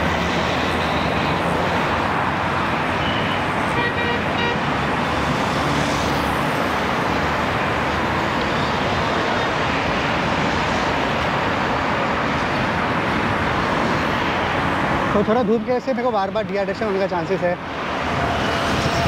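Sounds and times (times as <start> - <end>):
road traffic noise: 0.0 - 19.0
vehicle horn: 3.0 - 4.7.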